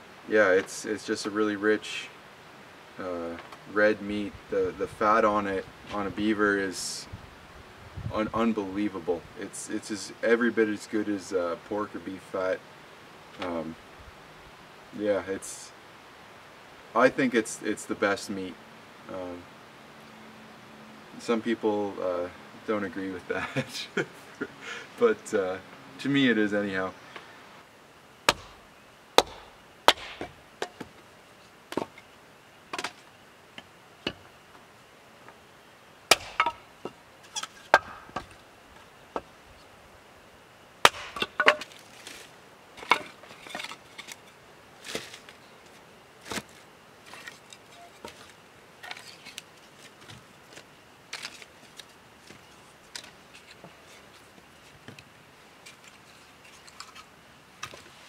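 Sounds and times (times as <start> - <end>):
wood chopping and snapping: 28.3 - 28.6, 29.2 - 30.9, 36.1 - 36.6, 37.3 - 38.4, 40.8 - 42.2.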